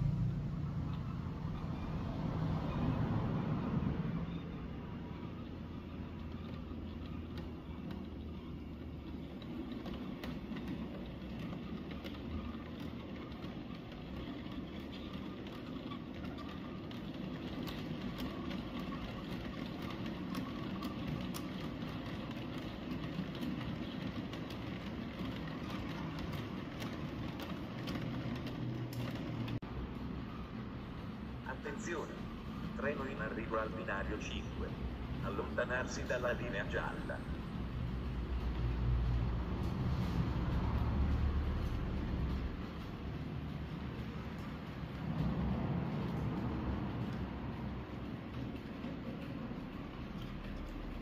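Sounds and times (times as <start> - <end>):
model train rumbling: 0.0 - 51.0
wheels clicking over rail joints: 0.0 - 51.0.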